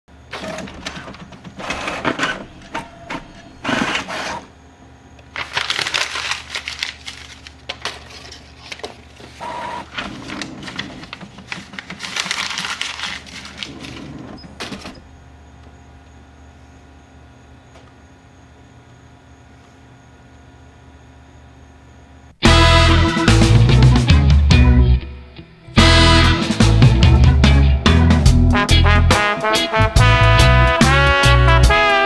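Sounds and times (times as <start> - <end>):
faint hum: 0.1 - 22.4
printer paper feed whirring: 0.2 - 4.5, 7.2 - 15.1
printer clicking and clattering: 0.3 - 4.4, 7.7 - 15.0.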